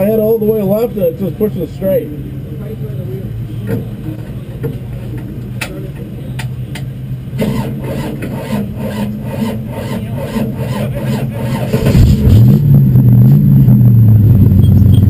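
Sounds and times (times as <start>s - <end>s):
race car engine idling: 0.0s - 15.0s
rough rasping rubbing pulse: 7.5s - 12.6s.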